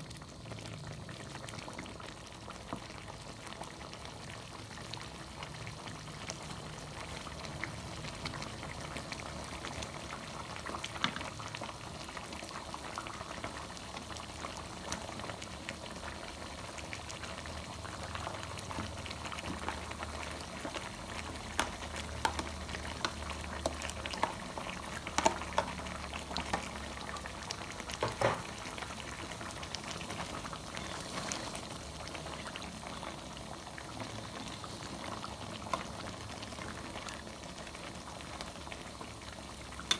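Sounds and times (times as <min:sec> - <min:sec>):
sauce simmering and bubbling: 0:00.0 - 0:39.9
spatula clicking in pan: 0:21.5 - 0:24.4.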